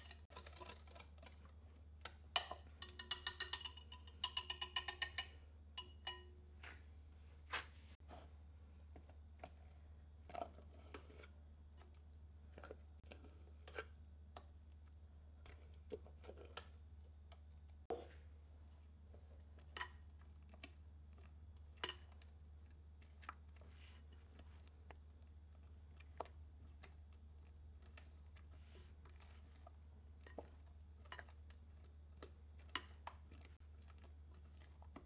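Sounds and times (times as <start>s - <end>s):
spatula scraping glass bowl: 0.0s - 1.5s.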